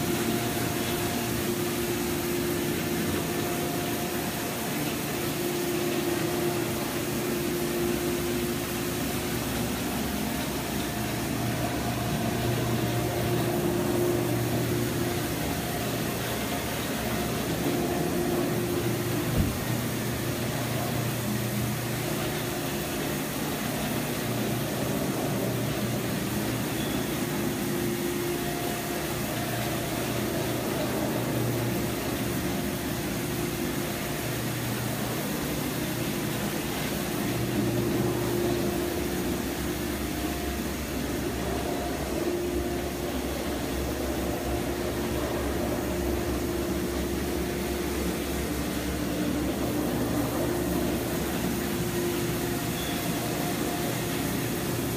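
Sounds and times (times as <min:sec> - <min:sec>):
low motor hum: 0:00.0 - 0:54.9.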